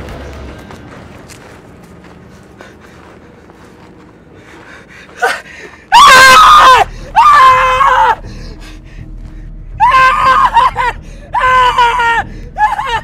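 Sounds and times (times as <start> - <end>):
high-pitched screams of terror: 5.9 - 8.2, 9.8 - 13.0.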